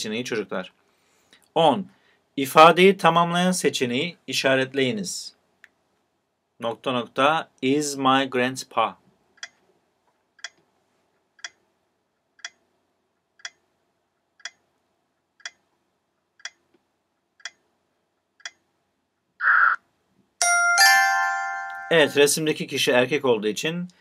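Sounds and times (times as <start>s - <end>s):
timer ticking: 9.4s - 9.6s, 10.4s - 10.6s, 11.4s - 11.7s, 12.3s - 15.7s, 16.4s - 18.7s
bright ringing chime: 20.4s - 22.6s.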